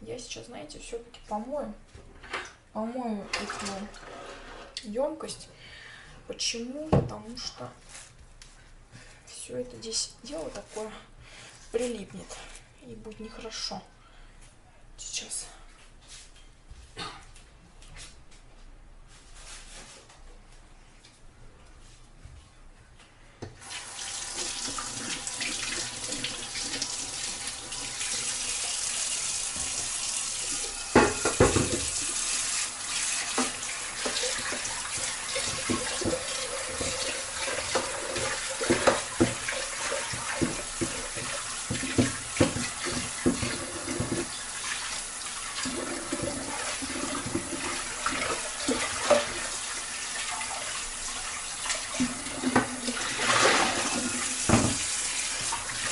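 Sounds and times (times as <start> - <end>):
tap water running into sink: 23.6 - 55.9.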